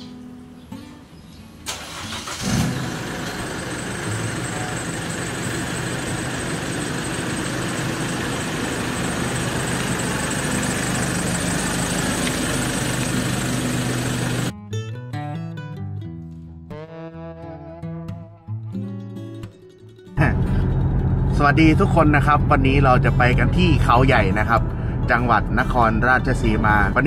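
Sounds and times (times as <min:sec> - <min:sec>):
guitar music: 0:00.0 - 0:01.8, 0:04.0 - 0:05.8, 0:07.4 - 0:27.0
car engine starting and idling: 0:01.6 - 0:14.5, 0:20.2 - 0:26.9.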